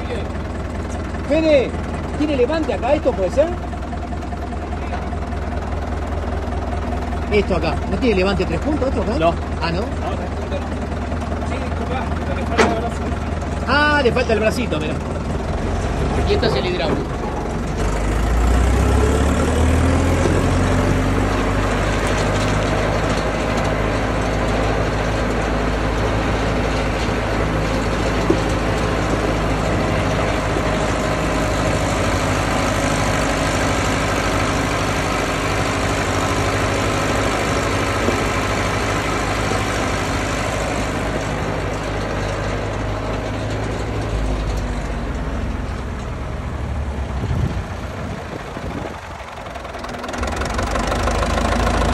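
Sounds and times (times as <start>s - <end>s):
tractor diesel engine: 0.0s - 51.9s
tyres on gravel: 19.3s - 46.3s.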